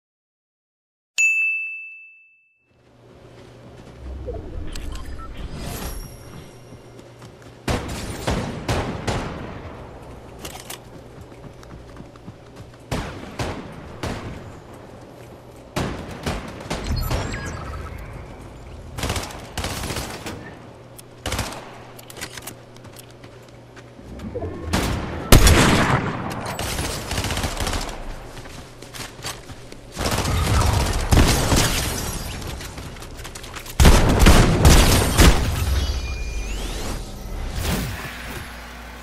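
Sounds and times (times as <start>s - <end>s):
shotgun blasts: 24.7s - 28.1s.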